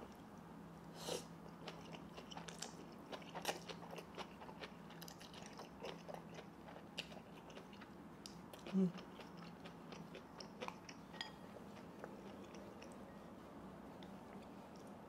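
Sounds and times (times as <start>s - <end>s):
faint steady hum: 0.0s - 15.0s
slurping and chewing noodles: 1.1s - 7.9s.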